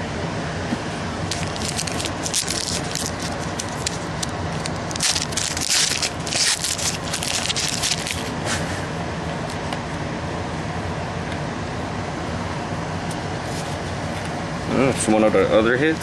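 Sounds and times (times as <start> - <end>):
foil wrapper crinkling: 1.3 - 8.4.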